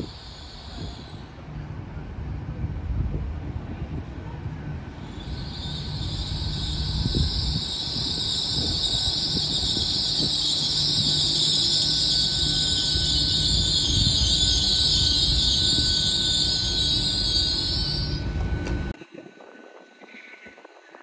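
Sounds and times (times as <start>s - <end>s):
train engines rumbling: 0.0s - 21.0s
wheels on rails: 5.0s - 21.0s.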